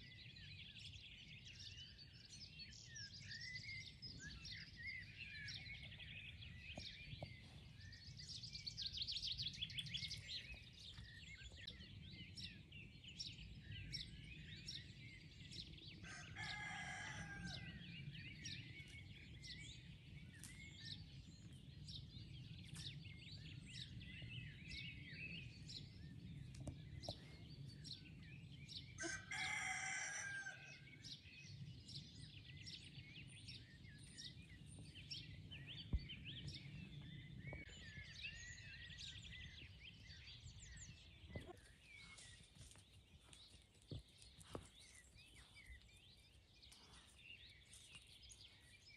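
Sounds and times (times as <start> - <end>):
songbirds chirping and trilling: 0.0 - 48.9
rooster crowing: 16.0 - 17.8, 29.0 - 30.8.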